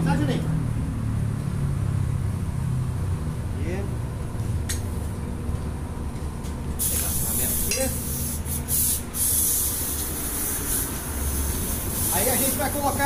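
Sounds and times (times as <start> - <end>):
compressed air hissing: 6.8 - 13.0.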